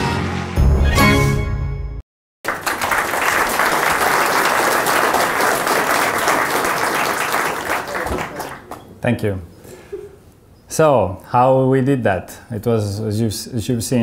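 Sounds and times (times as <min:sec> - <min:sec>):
film soundtrack: 0:00.0 - 0:02.0
audience applauding: 0:02.4 - 0:08.9.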